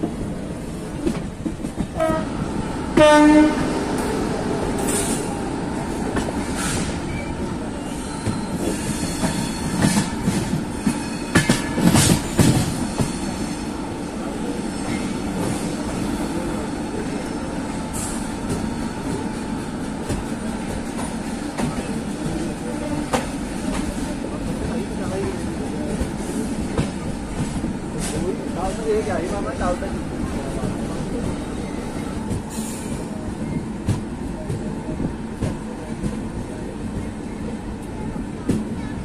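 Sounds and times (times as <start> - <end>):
train running: 0.0 - 39.0
train horn blast: 2.0 - 2.4, 3.0 - 3.8
train wheels clattering: 8.2 - 13.4.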